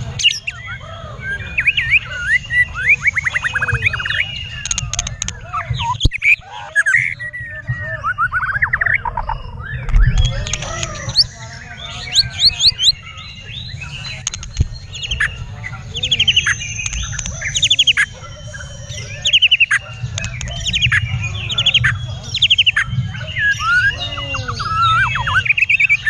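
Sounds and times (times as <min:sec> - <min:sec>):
bird song with sweeping notes: 0:00.0 - 0:26.0
low rumble: 0:08.3 - 0:12.6.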